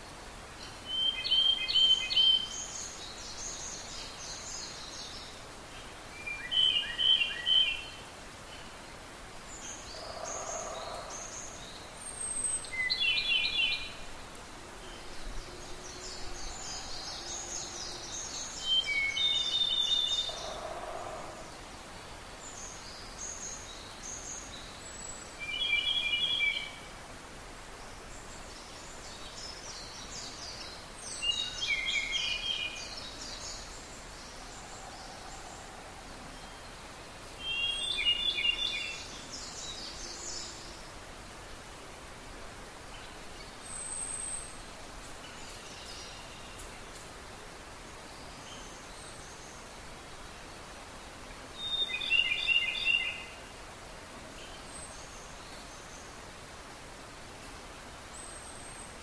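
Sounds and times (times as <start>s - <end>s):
higher fainter bird songs: 0.0s - 59.0s
loud bird song phrase: 0.6s - 8.7s, 9.5s - 14.0s, 14.8s - 21.6s, 28.0s - 40.8s, 51.6s - 53.5s.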